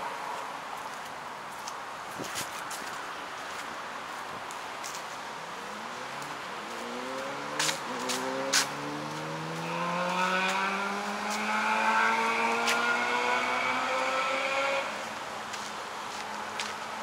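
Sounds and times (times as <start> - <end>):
vehicle engine pulling away: 5.7 - 15.0.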